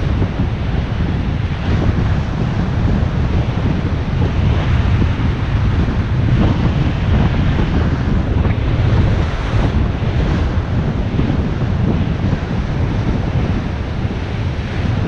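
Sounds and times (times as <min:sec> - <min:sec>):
surf washing onto beach: 0:00.0 - 0:15.0
wind buffeting microphone: 0:00.0 - 0:15.0.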